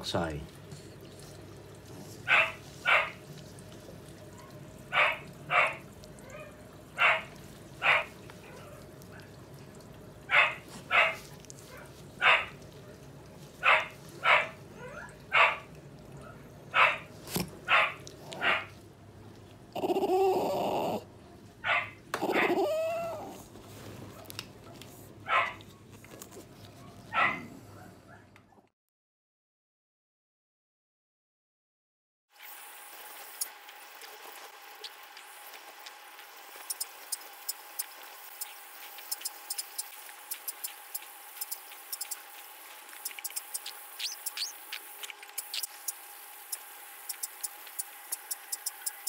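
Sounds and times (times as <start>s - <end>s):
dog barking in sharp yaps: 2.3s - 3.2s, 4.9s - 5.8s, 7.0s - 8.1s, 10.3s - 11.2s, 12.2s - 12.5s, 13.6s - 14.6s, 15.3s - 15.7s, 16.8s - 17.1s, 17.7s - 18.7s, 25.3s - 25.6s, 27.1s - 27.5s
dog drawn-out falling cries: 21.7s - 23.4s.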